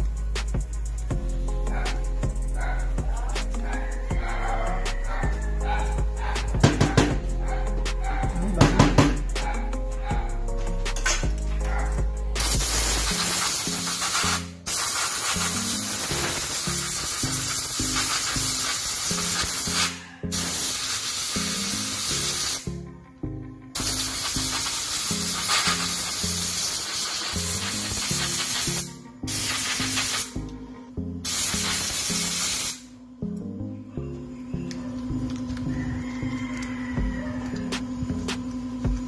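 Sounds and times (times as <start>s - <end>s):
background music: 0.0s - 39.0s
compressed air blow gun hissing: 12.3s - 22.8s, 23.8s - 30.5s, 31.2s - 32.9s.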